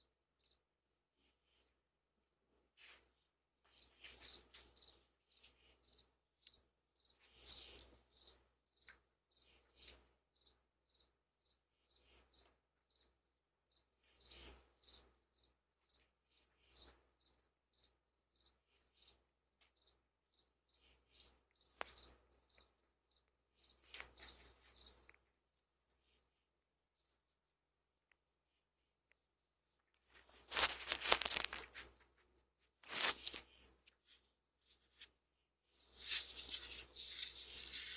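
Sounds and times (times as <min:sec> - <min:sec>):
cricket chirping: 0:00.0 - 0:01.0, 0:03.0 - 0:26.4, 0:30.5 - 0:33.1
fur rustling against camera: 0:30.2 - 0:32.0, 0:32.8 - 0:33.6.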